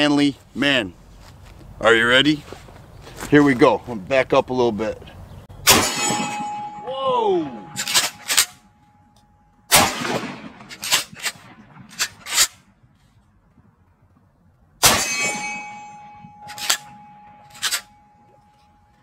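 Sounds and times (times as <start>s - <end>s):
shotgun shots: 5.6s - 6.8s, 7.6s - 8.6s, 9.7s - 12.6s, 14.8s - 17.8s.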